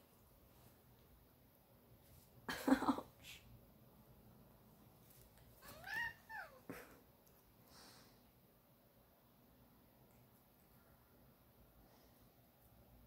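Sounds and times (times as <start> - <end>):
cat meowing: 5.6 - 6.7.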